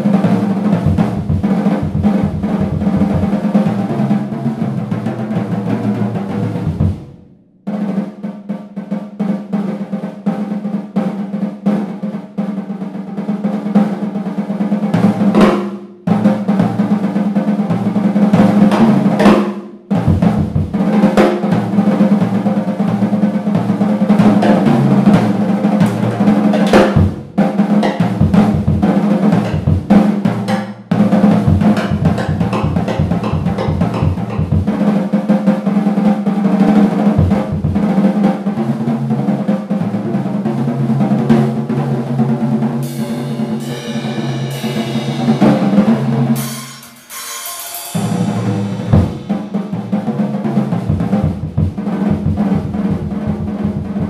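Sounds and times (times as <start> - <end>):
drum kit playing: 0.0 - 54.0
cymbals: 17.7 - 35.0, 42.8 - 52.3.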